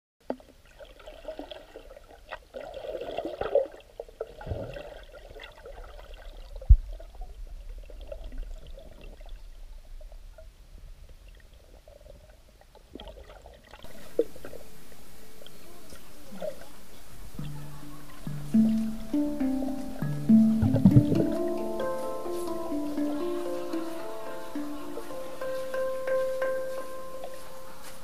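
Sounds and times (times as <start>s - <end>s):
underwater gurgling and sloshing: 0.3s - 18.8s.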